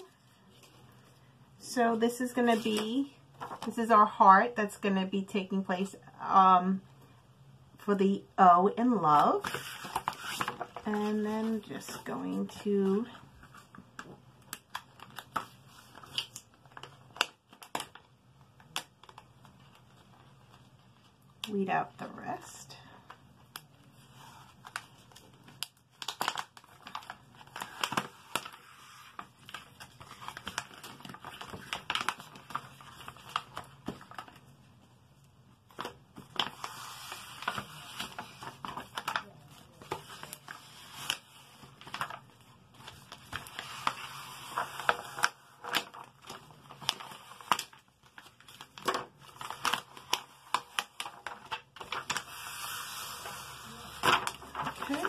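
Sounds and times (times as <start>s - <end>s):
vinyl peeling crinkling: 9.4s - 21.6s, 23.4s - 55.0s.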